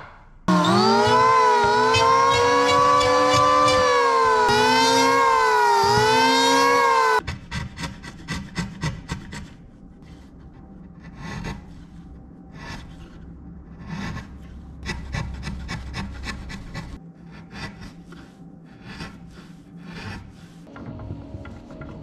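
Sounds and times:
hand tool scraping wood: 13.8s - 22.0s.

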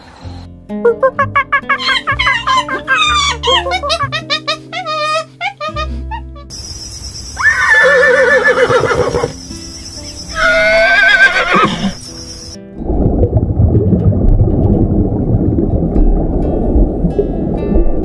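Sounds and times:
background music: 0.2s - 6.6s, 7.8s - 18.0s
horse whinnying: 7.4s - 9.3s, 10.3s - 12.0s.

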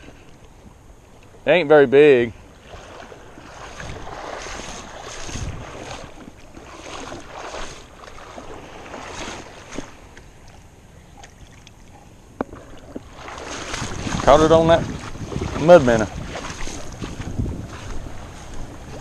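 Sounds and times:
water lapping: 0.0s - 19.0s
wind buffeting microphone: 2.2s - 9.9s, 12.6s - 19.0s.

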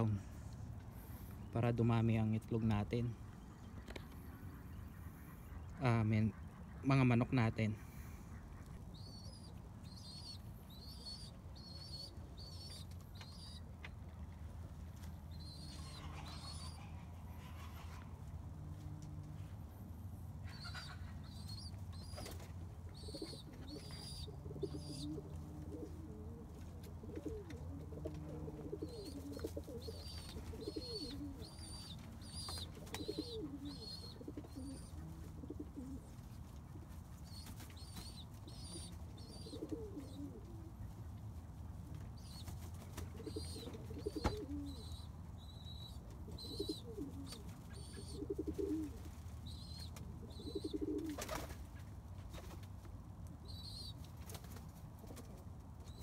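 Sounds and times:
pigeons cooing: 15.2s - 18.3s, 19.7s - 36.4s, 37.3s - 41.0s, 42.2s - 52.0s
wings flapping: 50.8s - 52.8s, 54.1s - 55.4s.

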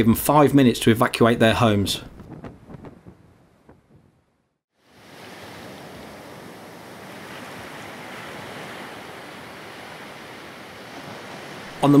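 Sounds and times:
surf and wind: 4.8s - 12.0s.

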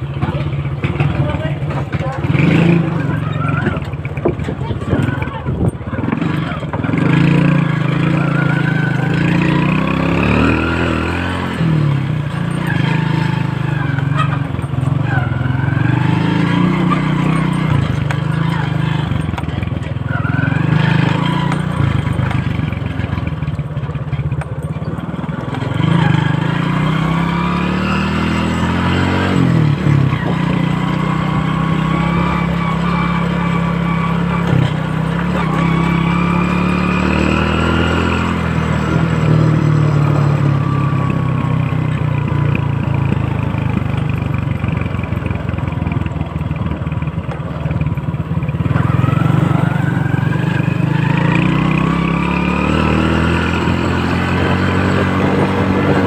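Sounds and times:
small motorcycle engine running: 0.0s - 56.0s.

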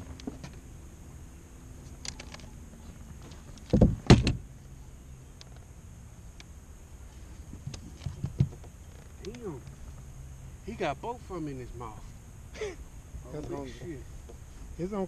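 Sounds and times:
heavy thumps against boat: 3.7s - 4.4s.

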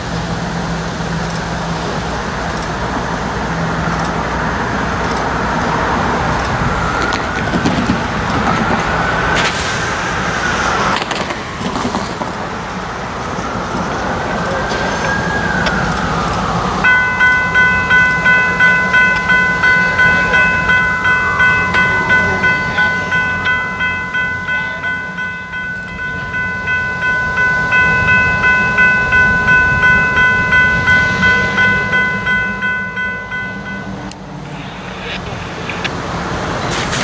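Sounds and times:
diesel engine rumble: 0.0s - 37.0s
locomotive bell ringing: 1.8s - 9.5s, 16.4s - 35.8s.

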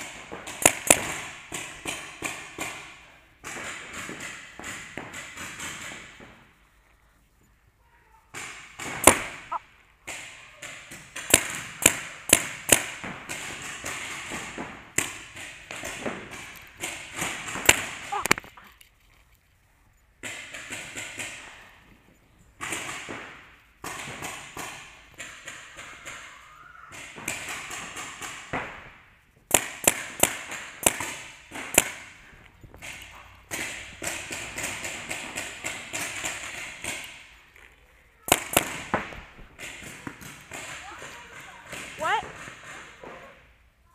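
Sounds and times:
distant paintball pops: 0.0s - 6.5s, 8.3s - 18.7s, 22.6s - 43.4s
paintball marker shots: 0.0s - 6.5s, 8.3s - 18.6s, 20.2s - 21.8s, 22.6s - 37.4s, 38.3s - 43.1s.

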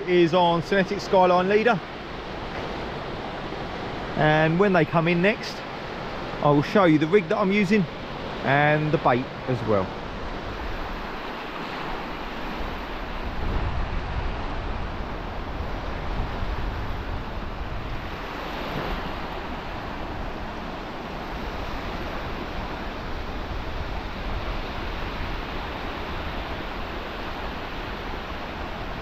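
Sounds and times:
waves washing up beach: 0.0s - 29.0s
wind buffeting microphone: 10.0s - 29.0s.

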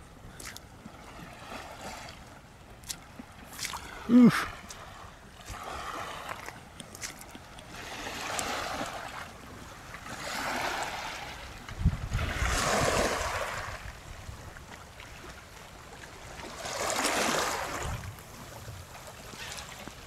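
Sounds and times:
small waves lapping on concrete: 0.0s - 20.0s
wind rumble on microphone: 11.3s - 14.8s, 17.5s - 20.0s.

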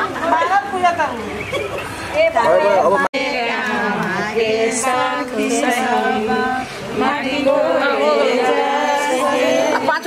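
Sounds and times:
women singing together: 2.1s - 10.0s.

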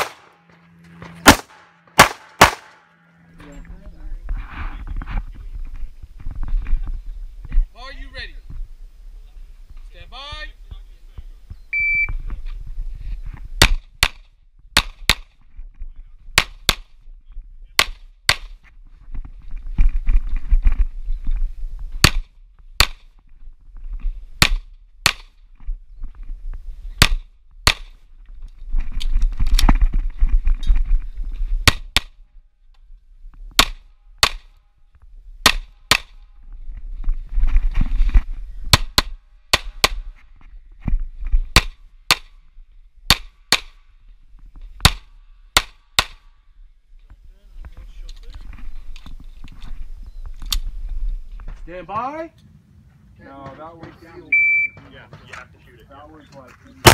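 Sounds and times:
pistol shots: 0.0s - 0.4s, 1.2s - 2.9s
noise: 0.0s - 53.4s.

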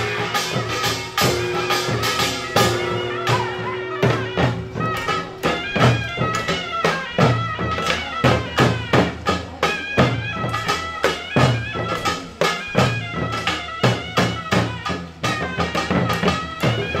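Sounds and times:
drums in driving rhythm: 0.0s - 17.0s
loud reedy wind melody: 0.0s - 17.0s.

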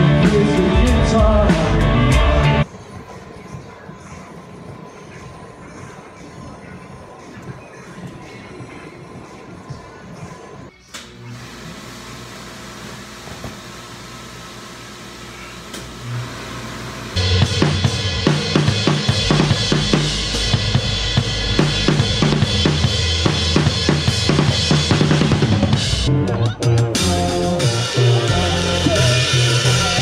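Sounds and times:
drum kit playing a beat: 0.0s - 2.7s, 17.2s - 30.0s.

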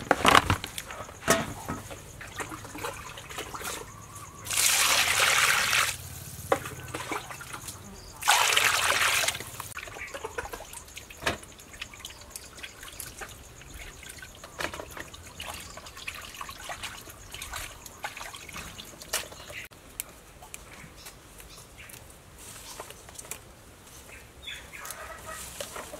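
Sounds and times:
water splashing and dripping: 1.9s - 19.7s.

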